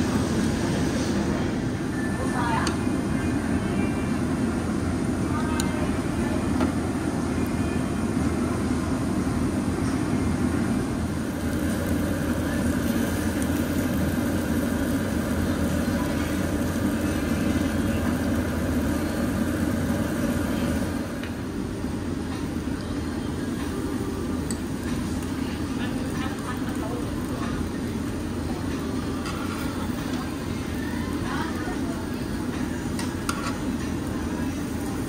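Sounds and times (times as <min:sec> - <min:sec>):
busy restaurant din: 0:00.0 - 0:35.0.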